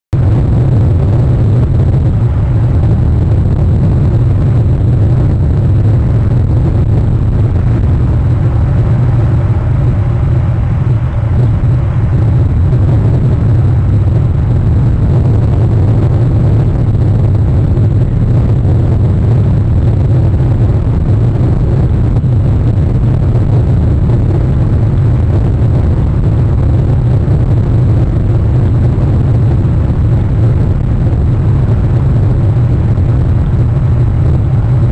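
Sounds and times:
wind rumble: 0.1s - 34.9s.

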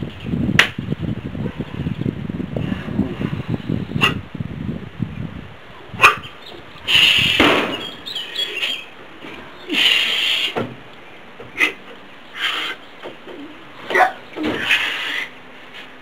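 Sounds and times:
hissing bursts of forced breath: 6.8s - 7.6s, 9.6s - 10.7s, 12.3s - 12.8s, 14.6s - 15.4s.

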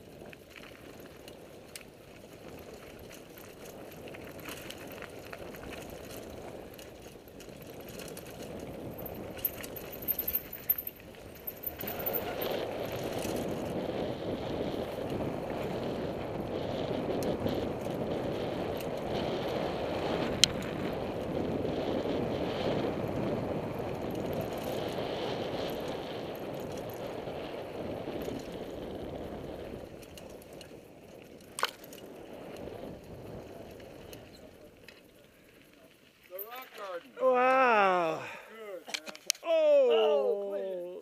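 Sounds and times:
wind and tyre noise: 0.0s - 39.5s.

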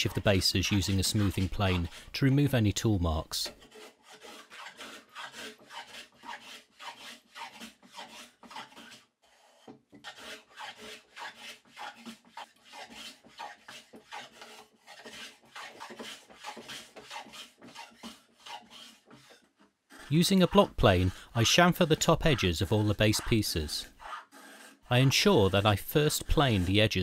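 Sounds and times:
plane shaving wood: 0.0s - 27.0s.

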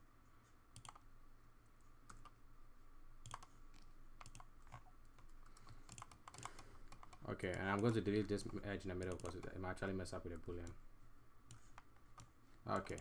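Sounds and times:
faint steady hum: 0.0s - 13.0s
mouse and keyboard clicks: 0.8s - 1.1s, 3.2s - 9.6s.

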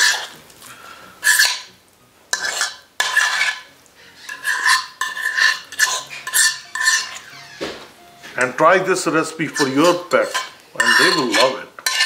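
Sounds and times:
food scraping against dishes: 0.0s - 0.4s, 1.2s - 1.7s, 2.3s - 8.5s, 9.3s - 12.0s
dishes ringing: 9.4s - 12.0s.

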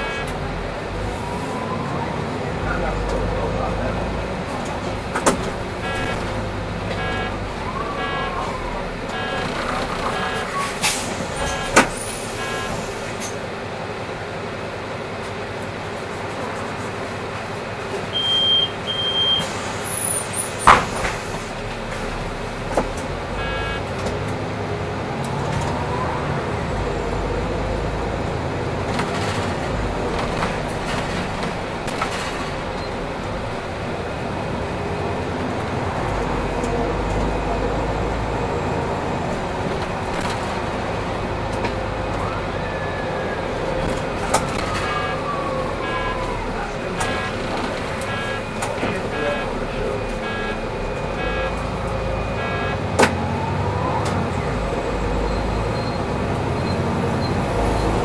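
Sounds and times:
bus engine and road noise: 0.0s - 58.0s
short high beeps: 5.8s - 6.3s, 6.9s - 10.7s, 11.4s - 12.8s, 23.4s - 23.8s, 44.7s - 52.9s.

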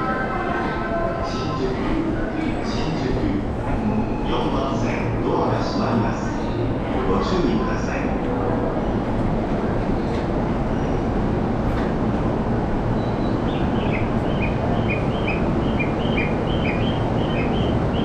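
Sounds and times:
crowd noise: 0.0s - 10.4s
rumble of trains: 0.0s - 18.0s.

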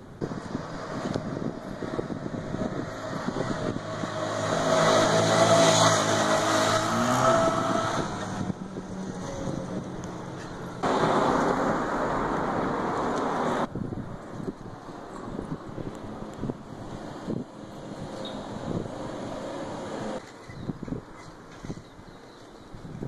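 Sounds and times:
vehicle engine passing: 0.2s - 13.7s.

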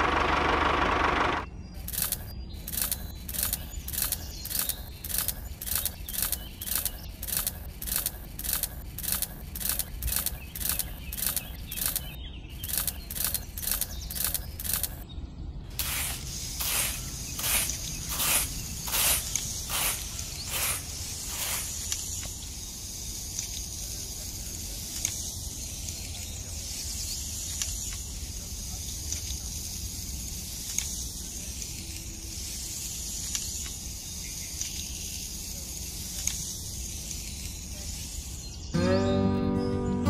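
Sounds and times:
motor running: 0.0s - 15.0s.

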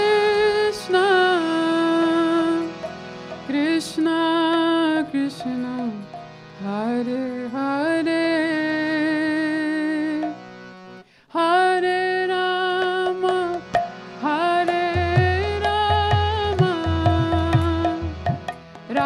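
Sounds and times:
woman singing: 0.0s - 2.7s, 3.5s - 10.4s, 11.3s - 18.1s
harmonium drone: 0.0s - 19.0s
hand drum beats: 13.3s - 14.0s, 15.0s - 19.0s.

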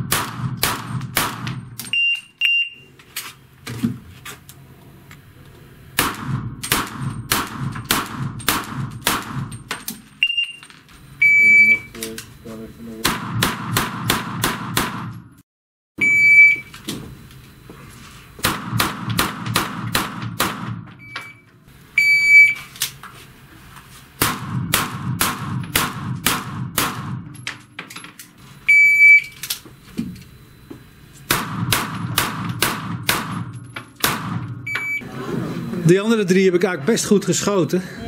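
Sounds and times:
rapid pistol shots echoing: 0.0s - 1.6s, 6.0s - 9.6s, 13.0s - 15.2s, 18.4s - 20.9s, 24.2s - 27.4s, 31.3s - 34.6s
shot timer beeps: 1.9s - 2.9s, 11.2s - 12.1s, 16.0s - 16.7s, 21.0s - 22.7s, 28.7s - 29.4s, 34.6s - 35.1s.

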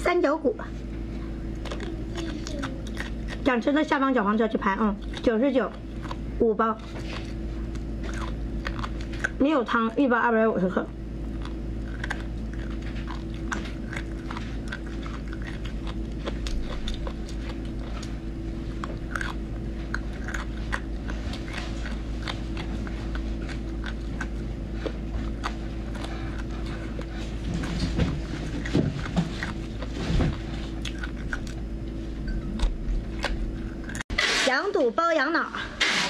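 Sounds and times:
steady low hum: 0.0s - 36.0s
person chewing crunchy cartilage: 0.9s - 9.8s, 10.7s - 34.2s.

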